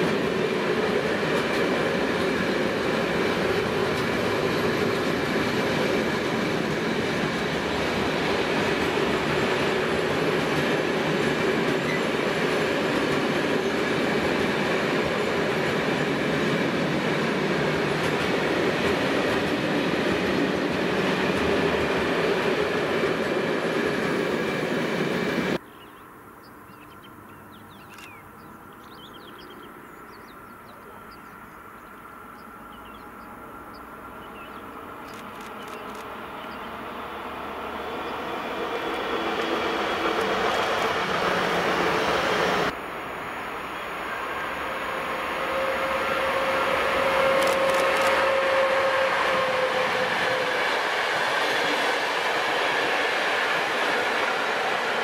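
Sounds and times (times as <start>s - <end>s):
freight train wheels rumbling: 0.0s - 25.6s, 28.4s - 55.0s
electric train approaching: 0.0s - 25.9s, 26.5s - 55.0s.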